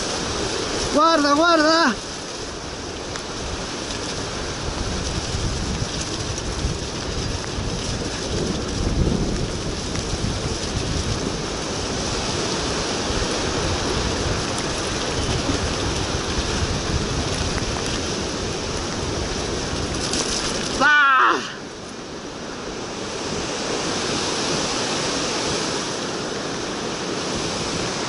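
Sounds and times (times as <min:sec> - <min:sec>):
bicycle rattling jolts: 0:00.0 - 0:21.9
bicycle tyre rumble: 0:00.0 - 0:28.0
wind rushing on microphone: 0:00.0 - 0:28.0.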